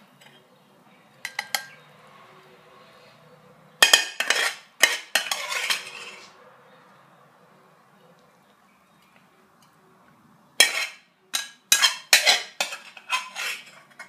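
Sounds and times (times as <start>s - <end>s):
metal spatula scraping pan: 3.8s - 6.4s, 10.6s - 14.0s.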